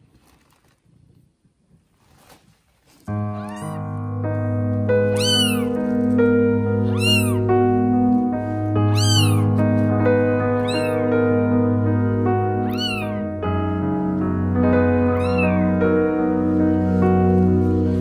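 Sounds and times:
kitten mewing: 3.2s - 3.9s, 5.1s - 5.8s, 6.8s - 7.5s, 8.9s - 9.6s, 10.5s - 11.1s, 12.6s - 13.2s, 15.2s - 15.7s
background music of sustained tones: 3.3s - 18.0s.

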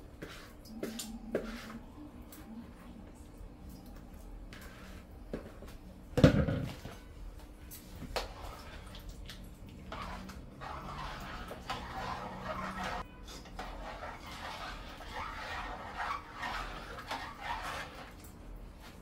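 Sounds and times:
spoon stirring rice in pot: 7.8s - 18.3s.

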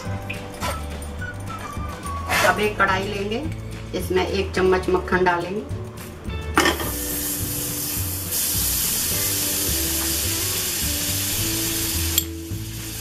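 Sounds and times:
butter sizzling in a pan: 6.8s - 13.0s.

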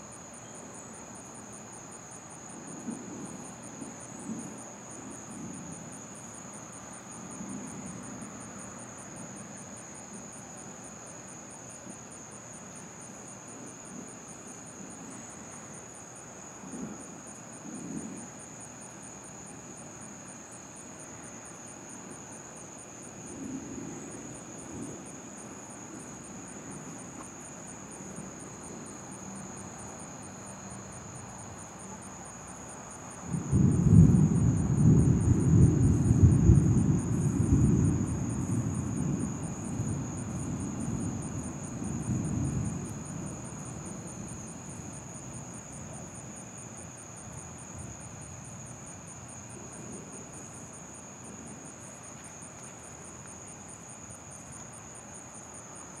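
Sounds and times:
night insects trilling: 0.0s - 56.0s
thunder rumbling: 33.3s - 45.1s.

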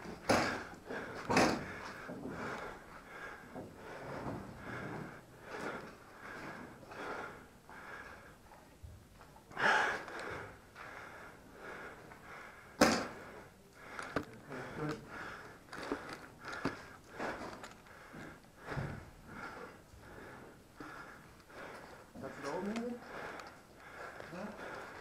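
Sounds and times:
sharp crack: 12.8s - 13.2s.

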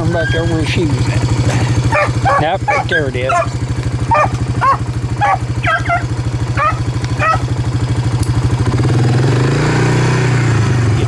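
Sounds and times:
dogs yelping: 0.0s - 7.8s
atv engine idling: 0.0s - 11.0s
engine revving: 0.0s - 11.0s.

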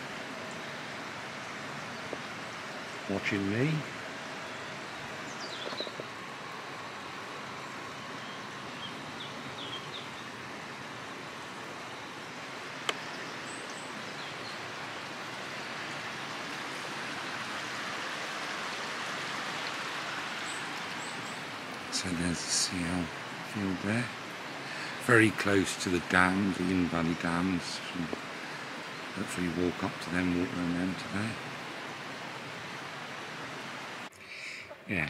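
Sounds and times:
river running over rocks: 0.0s - 34.1s
faint bird chirps: 1.5s - 10.5s.

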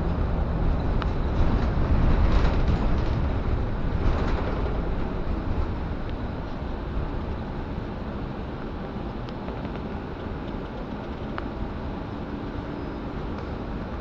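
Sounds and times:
bus engine rumble and road noise: 0.0s - 14.0s
faint clicks and rattles: 1.0s - 6.2s.

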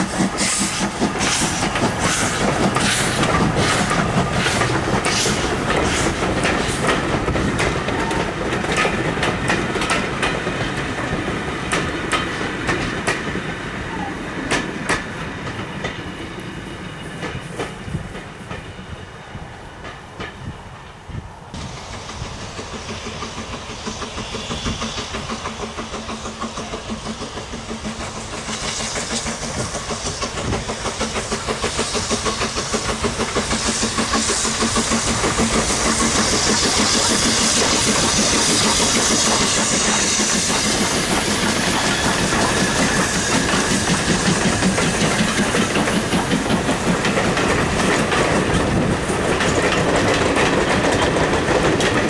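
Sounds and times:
steam locomotive beat: 0.0s - 19.1s, 21.6s - 52.0s
train wheels clicking over rail joints: 0.0s - 19.1s, 19.7s - 20.9s, 21.5s - 52.0s
steam hissing: 0.0s - 19.6s, 20.2s - 52.0s.

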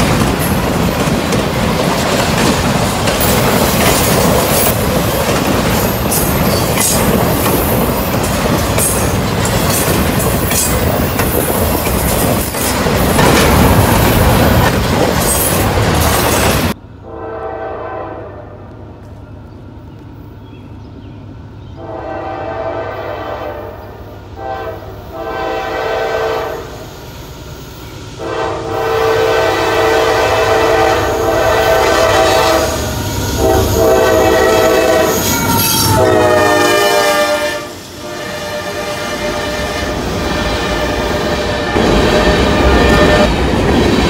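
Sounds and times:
locomotive engines and wheels rumbling: 0.0s - 44.0s
train horn blasts: 17.0s - 18.7s, 21.8s - 26.9s, 28.2s - 43.3s.

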